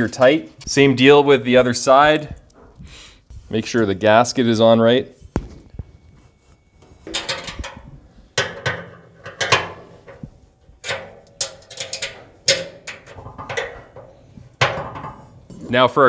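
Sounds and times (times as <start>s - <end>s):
hand tool clanking on sheet metal: 7.0s - 15.7s.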